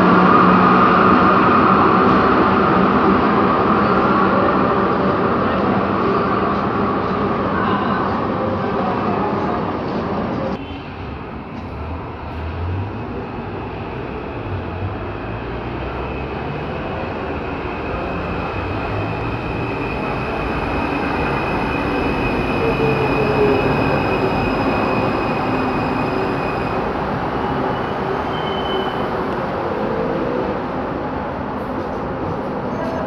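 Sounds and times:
train braking to a stop: 10.4s - 33.0s.

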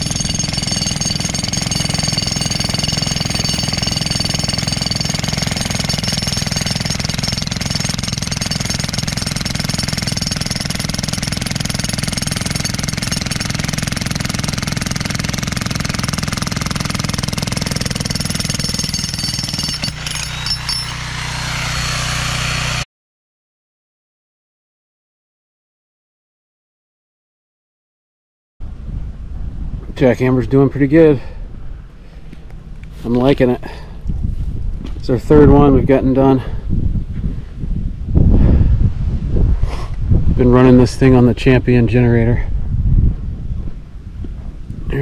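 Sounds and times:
breaker hammer hammering concrete: 0.0s - 22.8s
generator engine hum: 0.0s - 22.8s.

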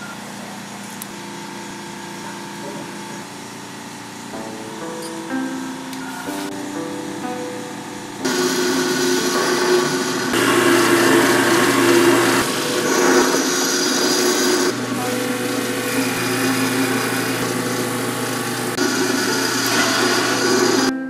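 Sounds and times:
drill press motor hum: 0.0s - 21.0s
drill bit scraping into wood: 8.3s - 14.7s, 18.8s - 20.9s.

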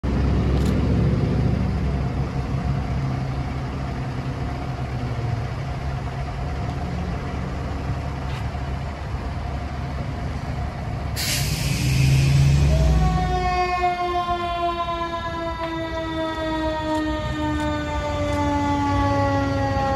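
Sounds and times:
fire engine running: 0.0s - 19.9s
air-brake hiss: 11.1s - 12.8s.

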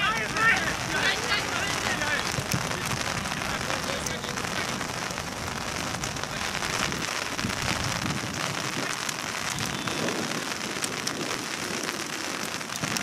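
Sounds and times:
raindrops clicking: 0.0s - 13.0s
steady rain falling: 0.0s - 13.0s.

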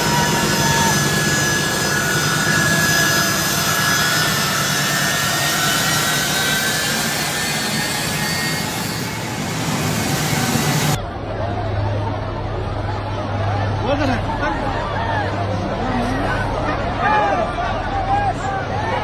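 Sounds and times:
jet engines roaring with whine: 0.0s - 11.2s.

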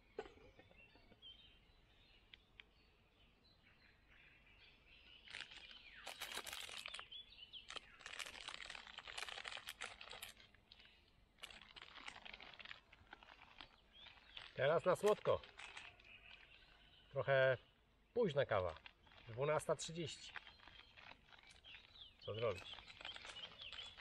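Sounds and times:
forest songbirds: 0.0s - 24.0s
dense crackling and crinkling: 5.2s - 24.0s.

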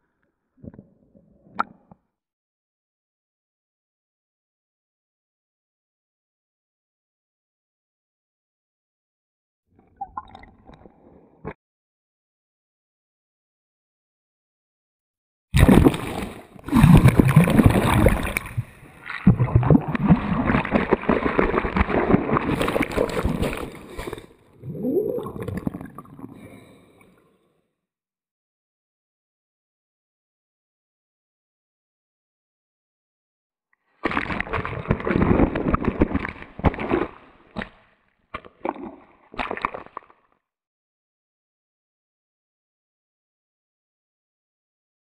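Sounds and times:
sea water sloshing and gurgling: 15.6s - 27.1s, 34.0s - 37.8s, 38.4s - 40.4s.

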